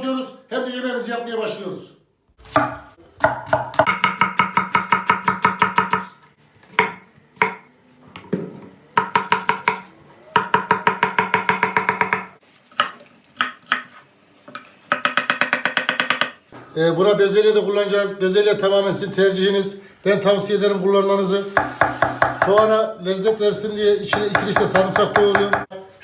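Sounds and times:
knife chopping on wooden board: 2.5 - 6.1, 6.7 - 7.7, 9.0 - 9.8, 10.4 - 16.4.

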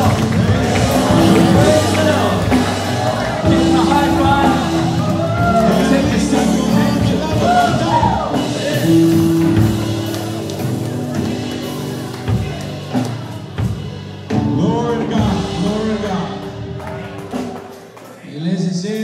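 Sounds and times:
voices singing: 0.0 - 10.4
held keyboard chords: 0.0 - 18.2
worship band playing: 0.0 - 19.0.

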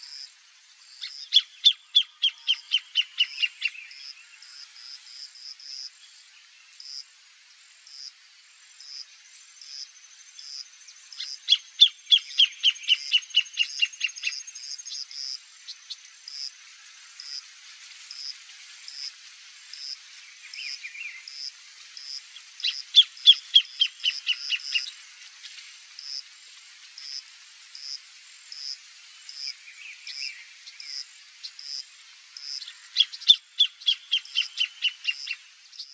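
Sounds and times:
bird singing rapid falling notes: 33.0 - 35.9.

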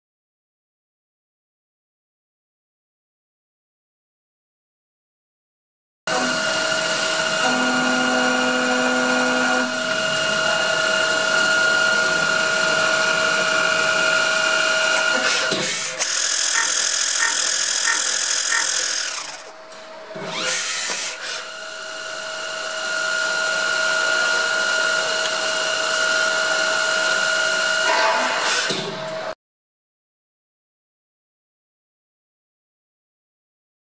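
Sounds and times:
machine motor whining: 6.1 - 29.3.

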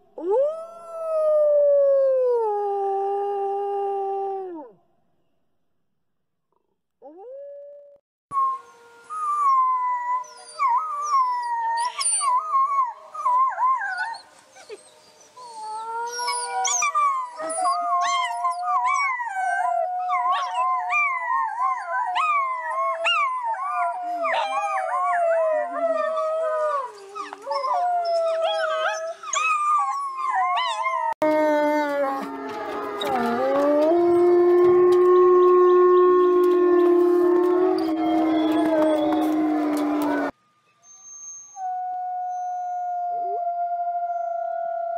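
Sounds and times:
wolf pups howling: 9.0 - 40.4.

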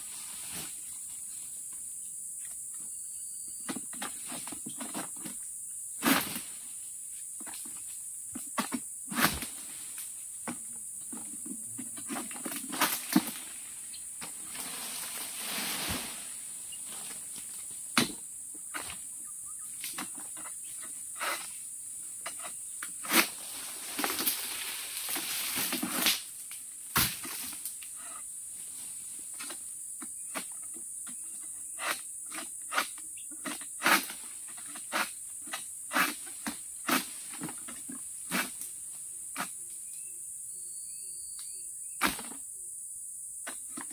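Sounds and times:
leaves rustling: 0.0 - 1.8, 11.9 - 29.7
insects droning: 0.0 - 43.9
sickle knocking on palm fronds: 12.0 - 13.5, 16.9 - 19.0, 26.9 - 27.6, 42.0 - 42.4.

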